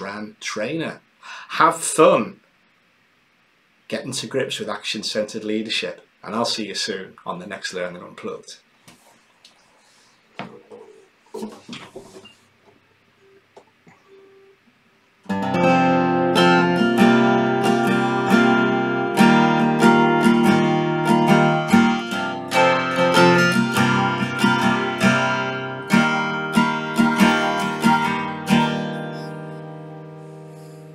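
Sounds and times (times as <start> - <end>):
acoustic guitar picking chords: 15.2 - 30.9.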